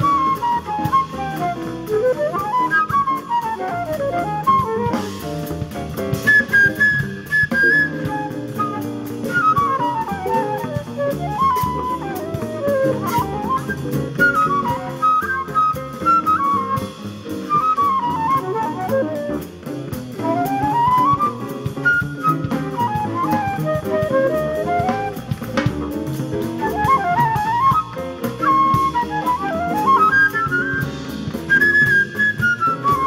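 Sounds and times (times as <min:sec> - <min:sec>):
drum kit cymbals: 0:00.0 - 0:33.0
jazz flute solo: 0:00.0 - 0:33.0
upright bass: 0:00.0 - 0:33.0.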